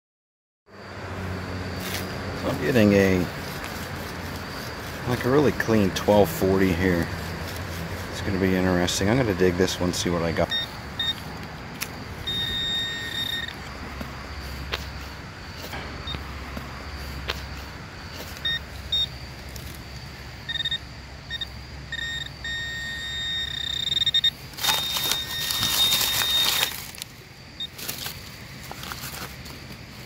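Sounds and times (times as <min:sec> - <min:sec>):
scraping and rustling of digging soil: 0:01.6 - 0:20.2, 0:24.4 - 0:30.0
metal detector beeping: 0:04.5 - 0:16.3, 0:16.9 - 0:19.2, 0:20.4 - 0:26.8, 0:27.6 - 0:27.8.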